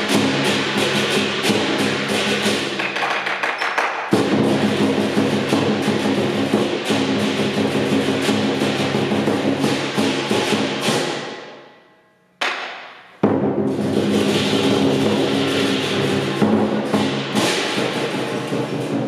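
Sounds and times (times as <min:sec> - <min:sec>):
large drum beating: 0:00.0 - 0:03.2, 0:04.1 - 0:11.4, 0:13.2 - 0:19.0.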